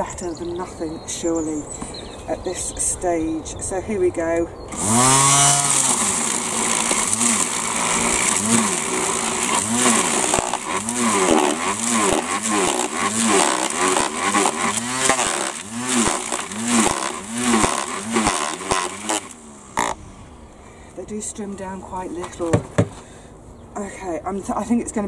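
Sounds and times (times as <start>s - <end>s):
string trimmer shredding leaves: 4.6s - 23.3s.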